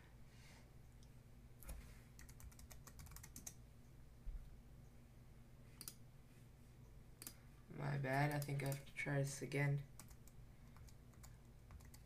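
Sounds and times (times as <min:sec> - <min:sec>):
computer keyboard typing: 0:02.2 - 0:03.6, 0:08.1 - 0:08.9, 0:10.0 - 0:12.0.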